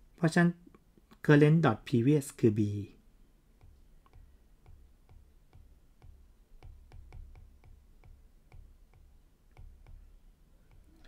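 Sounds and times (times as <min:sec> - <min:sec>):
stylus tapping on pen tablet: 0:03.5 - 0:11.0.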